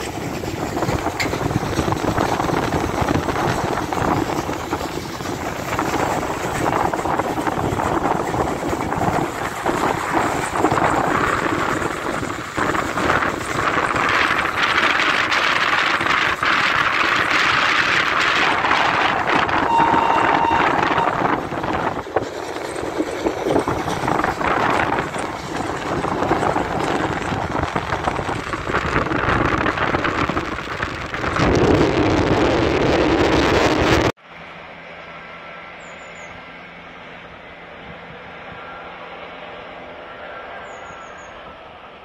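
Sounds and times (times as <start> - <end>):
steam locomotive exhaust: 0.0 - 27.1
wind on microphone: 0.0 - 34.2.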